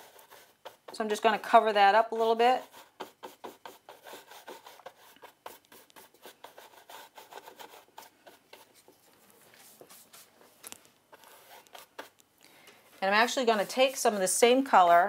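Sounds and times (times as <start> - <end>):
paintbrush scrubbing canvas: 0.0 - 1.4, 2.1 - 12.2, 12.9 - 15.0.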